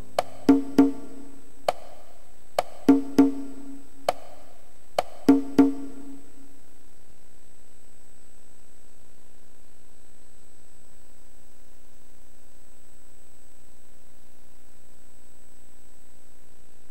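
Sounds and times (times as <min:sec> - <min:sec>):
wood-block-like percussion clicks: 0:00.2 - 0:01.1, 0:01.7 - 0:02.0, 0:02.6 - 0:06.0.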